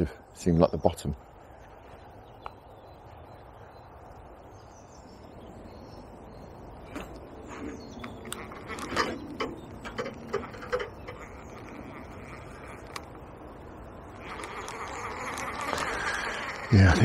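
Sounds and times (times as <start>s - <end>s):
faint birdsong: 0.0s - 17.0s
irregular clicks and knocks: 6.9s - 11.3s.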